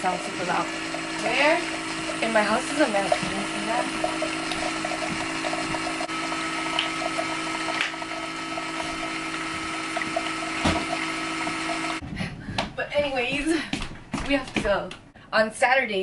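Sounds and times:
coffee maker brewing: 0.0s - 12.0s.

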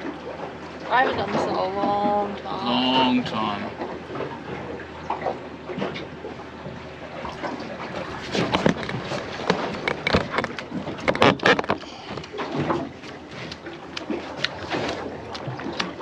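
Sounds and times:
knocks and clatters: 8.2s - 12.9s.

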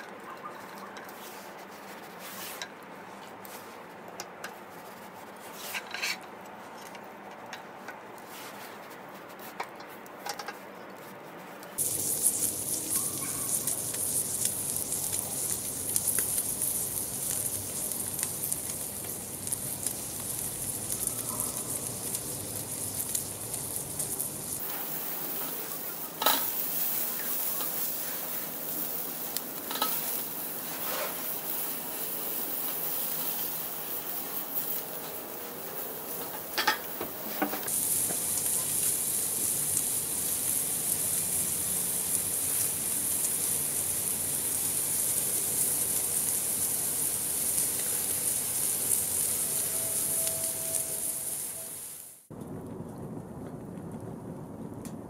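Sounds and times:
meat sizzling on grill: 11.8s - 52.3s
spatula clinking on grill grate: 25.3s - 31.7s, 36.1s - 37.7s.

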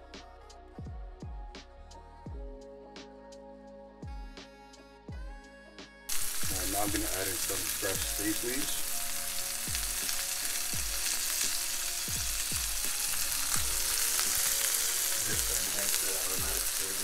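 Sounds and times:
meat sizzling in a skillet: 6.1s - 17.0s.

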